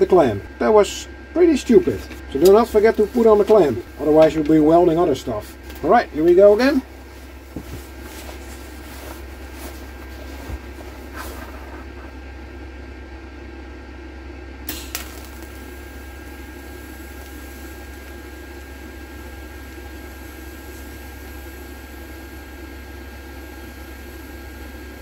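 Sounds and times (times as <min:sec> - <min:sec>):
welder humming and hissing: 0:00.0 - 0:12.2, 0:14.6 - 0:25.0.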